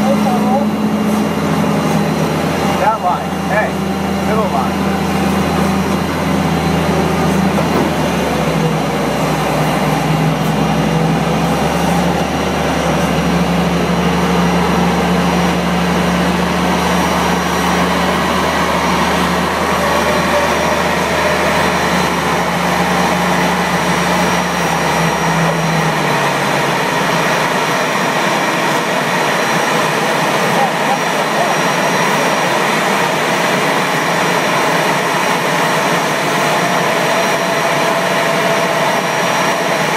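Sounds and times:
jet turbines whining: 0:00.0 - 0:39.9
tug engine humming: 0:00.0 - 0:39.9.

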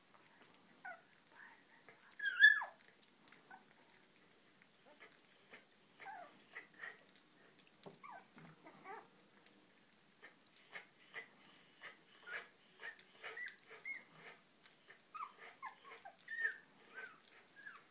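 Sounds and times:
puppies eating wet smacks: 0:00.0 - 0:17.9
puppies squeaking and whimpering: 0:02.2 - 0:02.8, 0:04.8 - 0:07.0, 0:08.0 - 0:09.1, 0:10.0 - 0:17.9.

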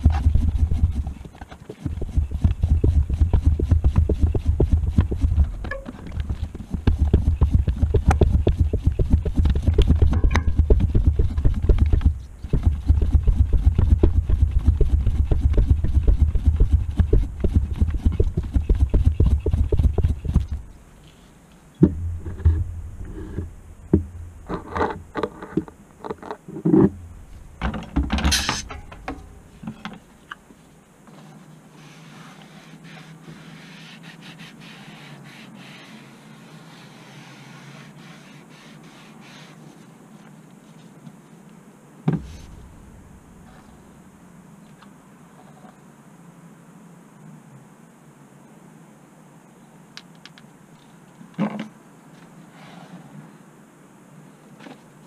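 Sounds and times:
floor pump strokes: 0:00.0 - 0:21.4, 0:30.6 - 0:39.9
air hiss: 0:31.7 - 0:39.9, 0:42.1 - 0:44.0.

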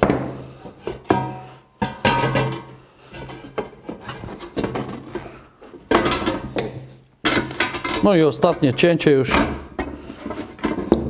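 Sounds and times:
sheet metal rubbing and clattering: 0:07.2 - 0:11.0.

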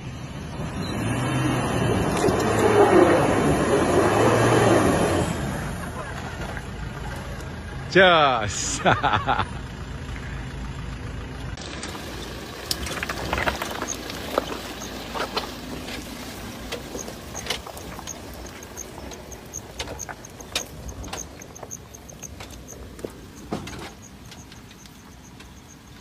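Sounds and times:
low engine rumble: 0:00.0 - 0:26.0
stones crunching under tyres: 0:00.9 - 0:05.3, 0:11.6 - 0:26.0.

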